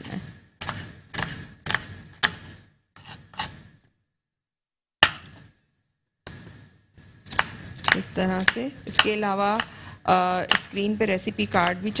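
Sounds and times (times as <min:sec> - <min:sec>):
knife cutting onion on wooden board: 0:00.6 - 0:03.7, 0:07.2 - 0:12.0.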